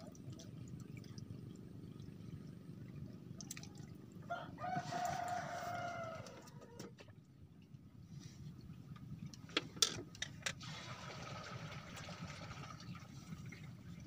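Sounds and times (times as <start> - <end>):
rooster crowing: 4.3 - 6.8.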